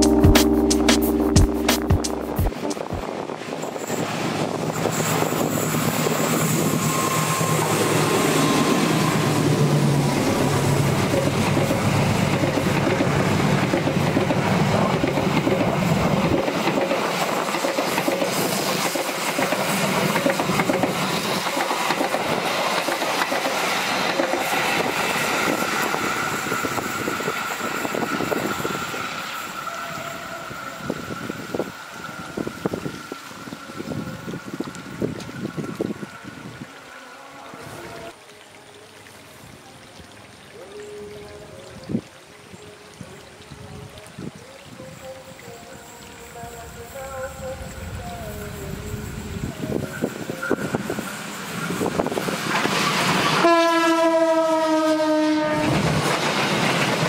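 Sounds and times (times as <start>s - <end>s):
train wheels rumbling and clattering: 9.4s - 29.4s, 55.6s - 57.0s.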